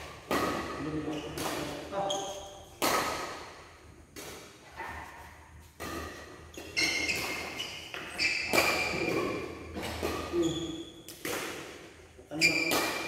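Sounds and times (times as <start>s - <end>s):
rackets hitting shuttlecock: 0.0s - 13.0s
shoes squeaking on court: 0.3s - 3.0s, 4.7s - 11.2s, 12.4s - 13.0s.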